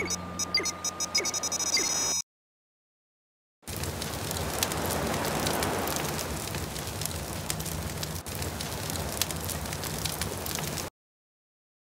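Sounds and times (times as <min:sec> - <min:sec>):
fire burning with crackles: 0:03.6 - 0:10.9.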